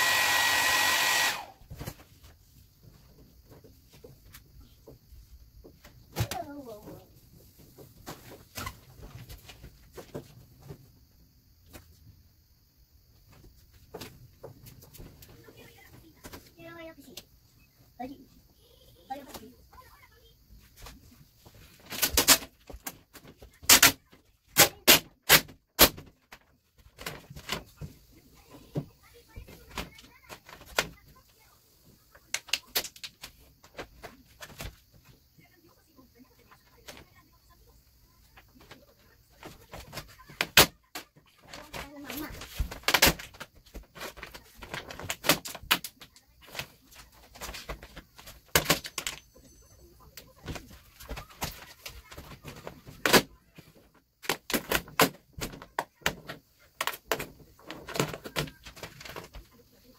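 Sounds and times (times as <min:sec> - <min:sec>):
vinyl film crackling rustles: 0:38.6 - 0:49.2, 0:50.2 - 0:59.9.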